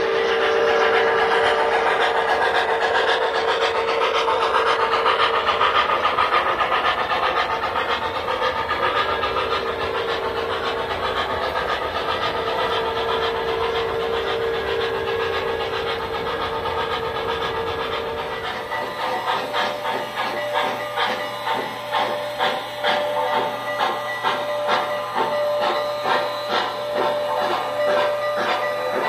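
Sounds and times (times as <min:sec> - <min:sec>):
steady hum: 0:00.0 - 0:22.4
steam hiss: 0:00.0 - 0:29.0
steam locomotive chuffing: 0:00.0 - 0:29.0
train wheels clattering on track: 0:00.0 - 0:29.0.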